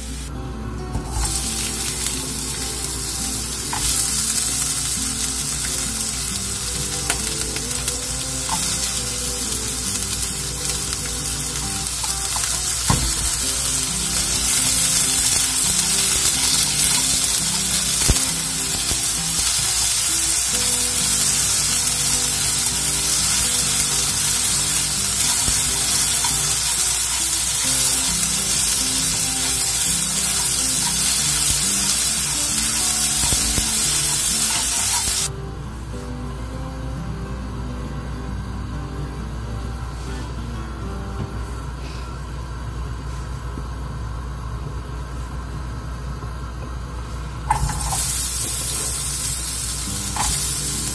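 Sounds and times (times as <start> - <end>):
onions sizzling in a wok: 0.0 - 35.3, 46.4 - 50.9.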